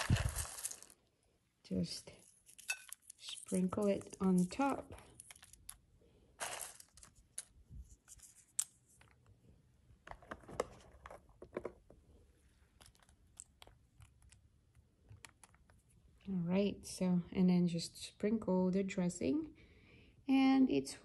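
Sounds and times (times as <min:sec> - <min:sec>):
crinkly rustle: 0:00.0 - 0:01.0
seeds sprinkled onto salad: 0:00.0 - 0:01.0, 0:01.9 - 0:05.8, 0:06.4 - 0:08.7.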